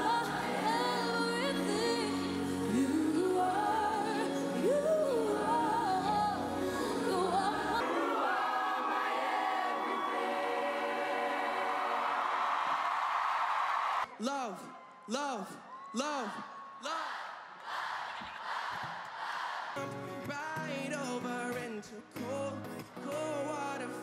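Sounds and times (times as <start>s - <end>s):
woman singing into microphone: 0.0s - 7.8s
pop backing music: 0.0s - 8.3s, 19.8s - 24.0s
children's choir singing: 0.0s - 12.7s, 16.9s - 19.8s.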